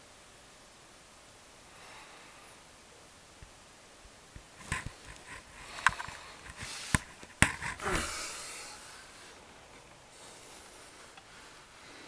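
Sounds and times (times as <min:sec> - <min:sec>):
faint hiss: 0:00.0 - 0:12.0
rustling: 0:04.3 - 0:12.0.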